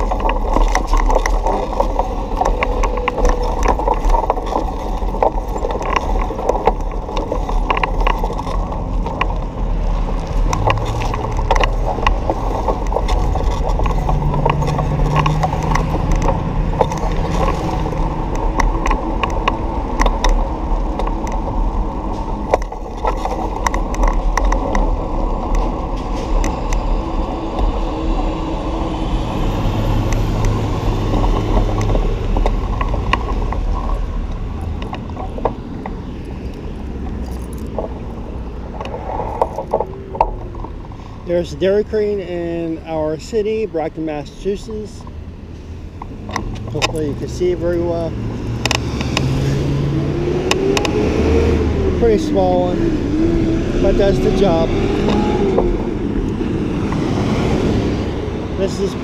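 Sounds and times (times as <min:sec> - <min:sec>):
bicycle clicks and rattles: 0:00.0 - 0:28.4
passing car engines: 0:00.0 - 0:59.0
wind and road noise: 0:00.0 - 0:59.0.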